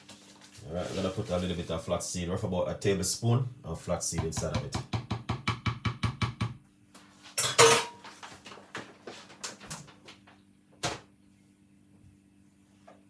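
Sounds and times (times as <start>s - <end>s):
kitchenware clattering: 7.3s - 8.1s.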